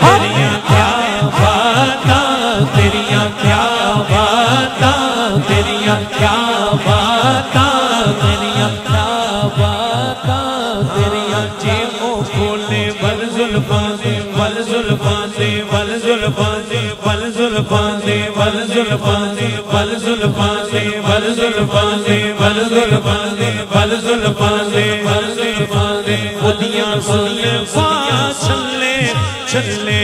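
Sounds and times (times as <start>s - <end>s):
steady low drone: 0.0s - 11.8s
man singing into a microphone: 0.0s - 30.0s.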